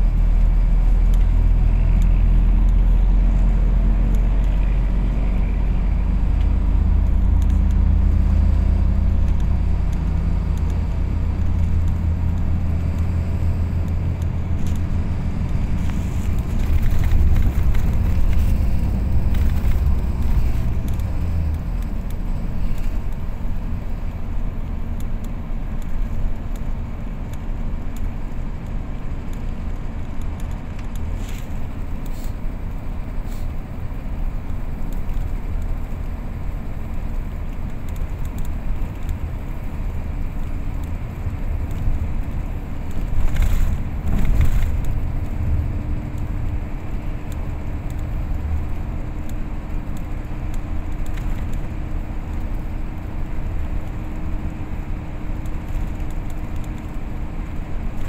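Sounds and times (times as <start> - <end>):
vehicle road and engine rumble: 0.0 - 58.0.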